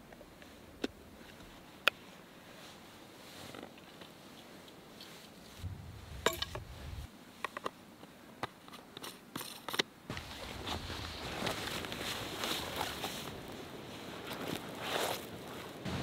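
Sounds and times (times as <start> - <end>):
low rustling: 5.5 - 7.1.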